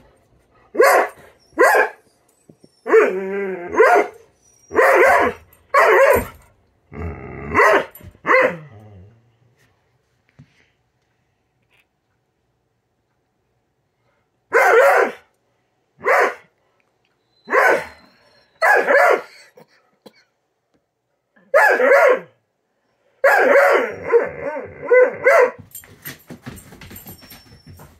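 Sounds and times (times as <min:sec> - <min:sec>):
dog barking: 0:00.7 - 0:02.0, 0:03.7 - 0:04.2, 0:04.8 - 0:06.3, 0:07.6 - 0:08.6, 0:14.5 - 0:15.3, 0:16.0 - 0:16.5, 0:17.5 - 0:18.0, 0:18.6 - 0:19.4, 0:21.4 - 0:22.4, 0:23.2 - 0:24.3, 0:24.9 - 0:25.6.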